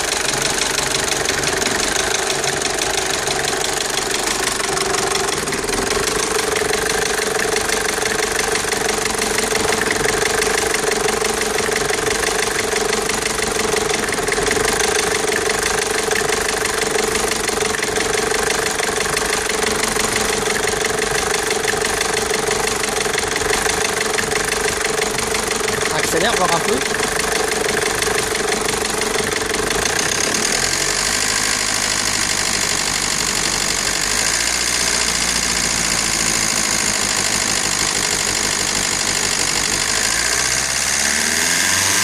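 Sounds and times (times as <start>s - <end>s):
diesel engine idling: 0.0s - 40.8s
rapid ticking clatter: 0.0s - 40.8s.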